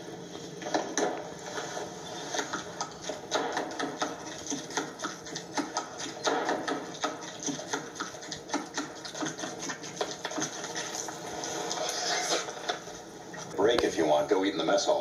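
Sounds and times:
comic eating sound effect clicking: 2.4 - 11.1.

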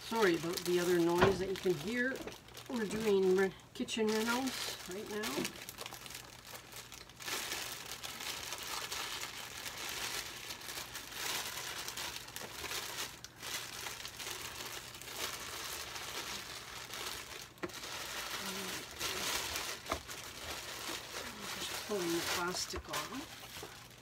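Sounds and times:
plastic bag crinkling: 0.0 - 24.0.

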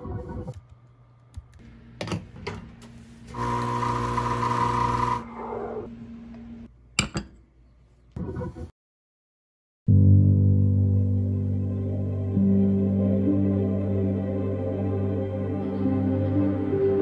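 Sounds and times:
espresso machine pump buzzing: 3.3 - 5.2.

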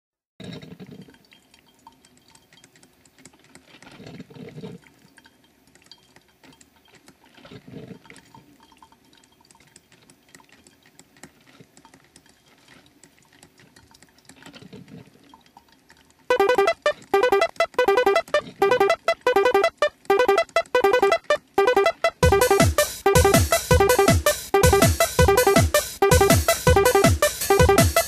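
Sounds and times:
coffee dripping and gurgling: 0.4 - 16.3
loud keyboard music: 16.3 - 28.0.

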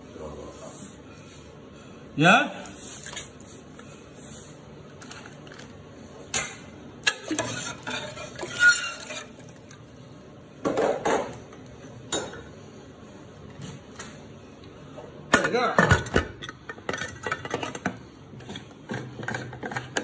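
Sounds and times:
metal utensil scraping a pot: 7.1 - 9.6.

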